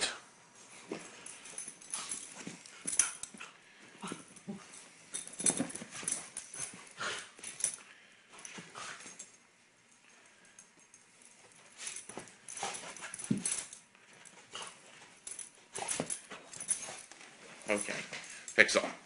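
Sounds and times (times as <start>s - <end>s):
soft dog noises: 0.0s - 19.0s.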